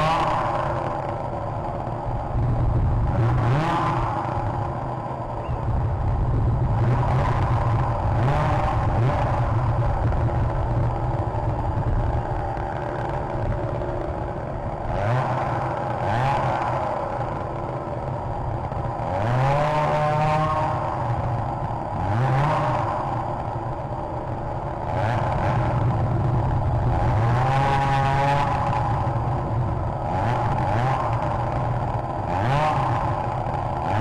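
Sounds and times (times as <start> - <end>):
motor engines revving: 0.0 - 34.0
steady rumble: 0.0 - 34.0.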